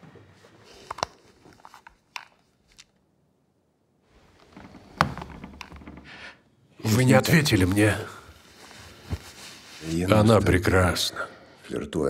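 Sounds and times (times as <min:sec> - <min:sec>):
small rustles: 0:04.1 - 0:10.6.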